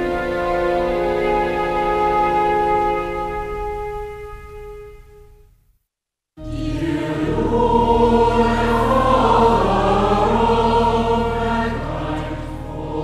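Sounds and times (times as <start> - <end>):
choir singing held chords: 0.0 - 3.7, 6.4 - 13.0
music: 0.0 - 5.7, 6.4 - 13.0.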